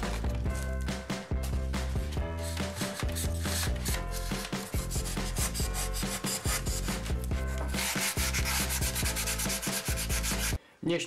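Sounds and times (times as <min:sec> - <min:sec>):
sandpaper rubbing on foam: 0:02.4 - 0:07.1, 0:07.7 - 0:10.6.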